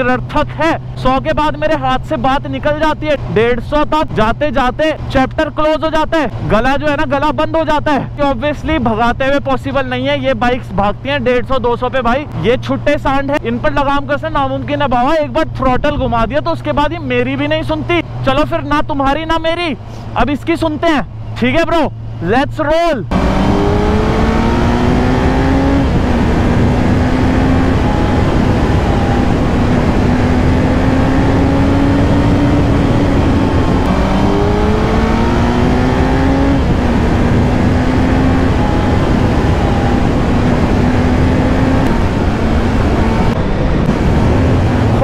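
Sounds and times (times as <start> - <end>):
motorcycle engine accelerating: 23.1 - 45.0
wind rush on microphone: 23.1 - 45.0.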